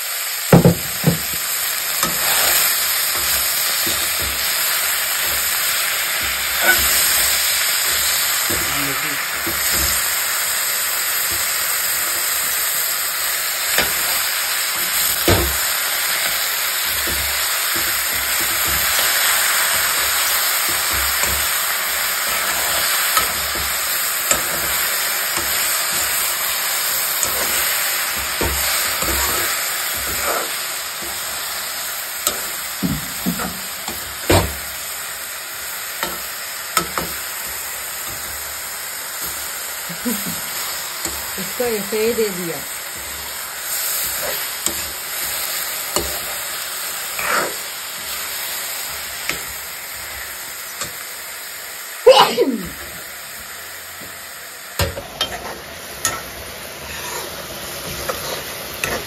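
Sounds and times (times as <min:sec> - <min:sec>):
mushrooms sizzling in a pan: 0:00.0 - 0:59.0
spoon knocking against pan: 0:00.5 - 0:01.4.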